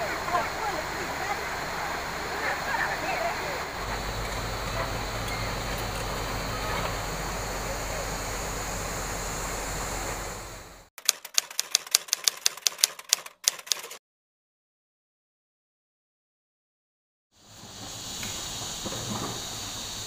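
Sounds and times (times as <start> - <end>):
outdoor background noise: 0.0 - 10.9, 17.4 - 20.0
typewriter key clicks: 11.0 - 14.0.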